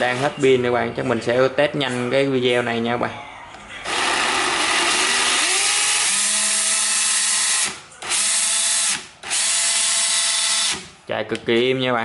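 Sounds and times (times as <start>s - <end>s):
cordless drill whirring: 3.9s - 10.9s.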